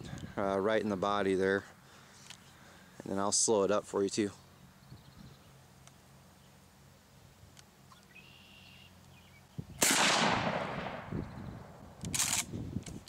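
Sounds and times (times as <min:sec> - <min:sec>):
shotgun blast with echo: 0:09.8 - 0:11.1.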